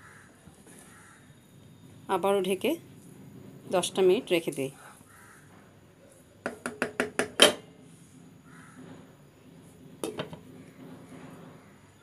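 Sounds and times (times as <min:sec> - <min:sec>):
wooden spatula knocking on pan: 0:06.4 - 0:07.6.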